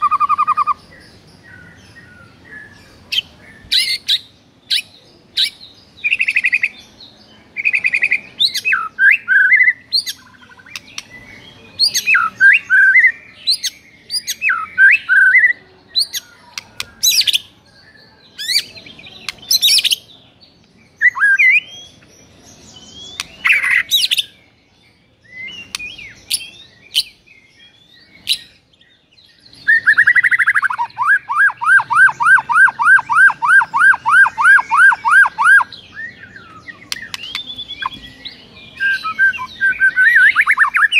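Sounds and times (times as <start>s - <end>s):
bird singing whistled phrases: 7.6s - 20.0s, 21.0s - 22.0s, 29.5s - 40.9s.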